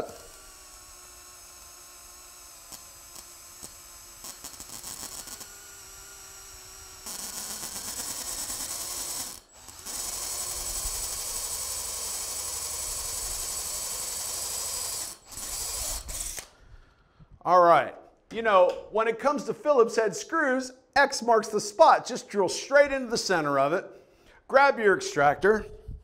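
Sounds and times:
power drill boring into metal: 0.0s - 16.5s.

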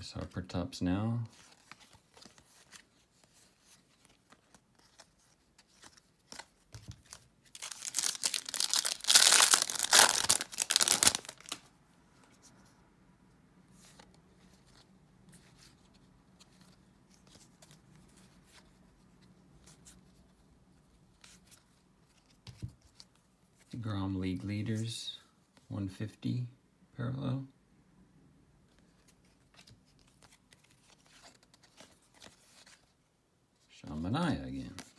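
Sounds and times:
foil wrapper tearing and crinkling: 7.6s - 11.6s.

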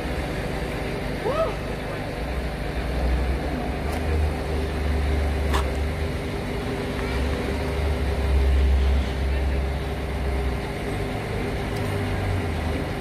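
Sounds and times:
heavy vehicle engine rumbling: 0.0s - 13.0s.

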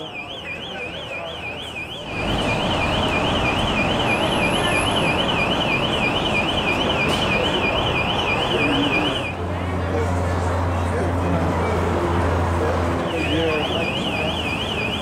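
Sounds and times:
warbling electronic alarm: 0.0s - 9.4s, 13.0s - 15.0s
rushing background noise: 0.0s - 15.0s.

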